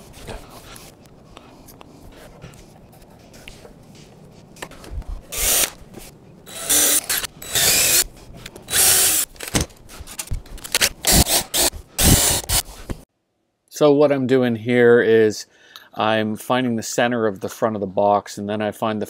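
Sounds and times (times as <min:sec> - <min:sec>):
cordless drill running: 0:05.3 - 0:05.8, 0:06.5 - 0:08.1, 0:08.7 - 0:09.3, 0:11.0 - 0:12.6.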